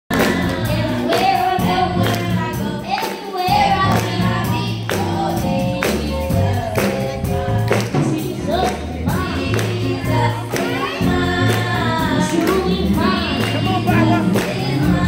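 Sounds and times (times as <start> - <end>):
backing music with steady beat: 0.1 - 15.0
girls singing backup: 0.1 - 15.0.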